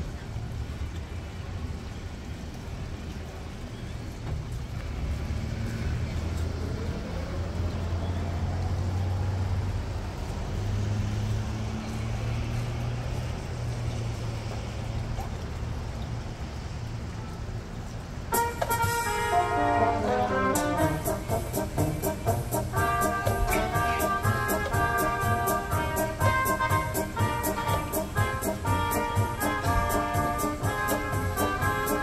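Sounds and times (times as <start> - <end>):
street traffic: 0.0 - 32.0
tune over loudspeakers: 18.3 - 32.0.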